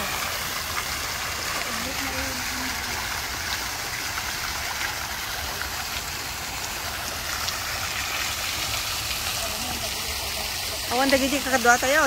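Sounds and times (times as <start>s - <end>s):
water fountain splashing: 0.0s - 12.0s.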